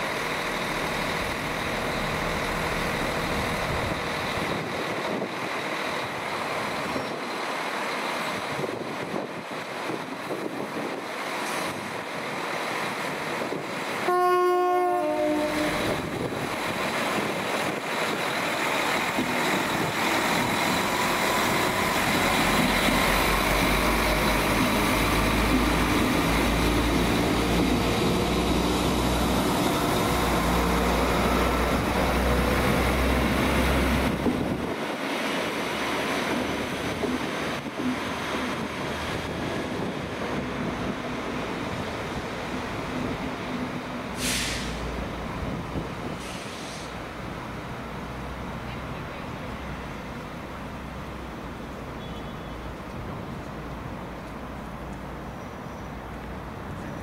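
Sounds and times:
train rumble and rail noise: 0:00.0 - 0:57.0
train two-note horn: 0:14.0 - 0:16.0.

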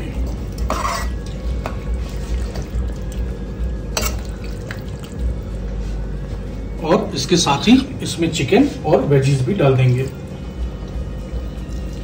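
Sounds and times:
steady low hum: 0:00.0 - 0:12.0
spoon stirring thick sauce: 0:00.1 - 0:03.4.

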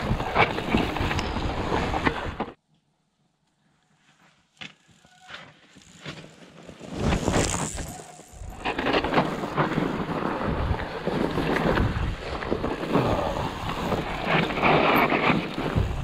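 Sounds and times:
bike rumbling and rattling over snow: 0:00.0 - 0:02.6, 0:04.8 - 0:16.0
bike rider passing close: 0:04.5 - 0:16.0
wind rushing over microphone: 0:07.0 - 0:16.0.

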